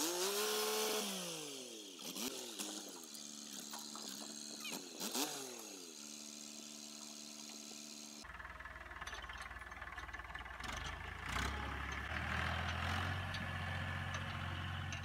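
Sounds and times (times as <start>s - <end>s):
tractor diesel engine revving: 0.0s - 6.8s, 7.6s - 15.0s.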